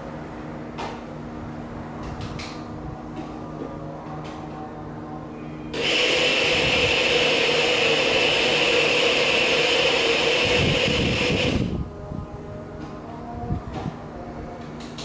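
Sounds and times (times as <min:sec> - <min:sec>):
motor appliance whirring: 0:05.8 - 0:11.7.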